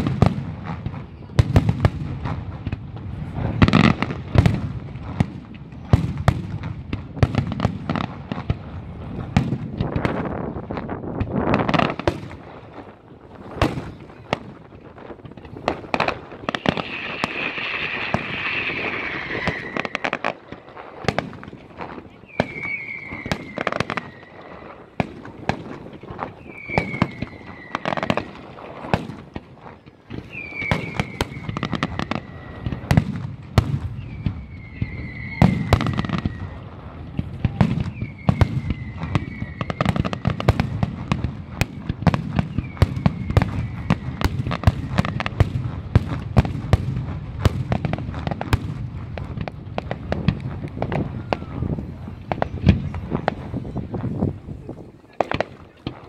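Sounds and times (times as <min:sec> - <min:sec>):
fireworks bangs and crackles: 0:00.0 - 0:56.0
falling firework whistle: 0:15.7 - 0:29.2, 0:29.8 - 0:45.7, 0:50.3 - 0:53.3.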